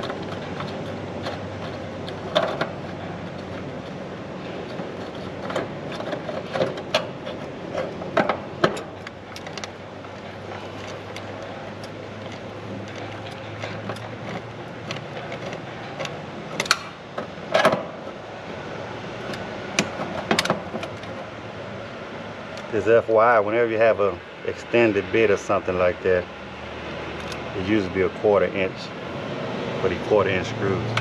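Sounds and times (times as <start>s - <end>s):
steady background hum: 0.0s - 31.0s.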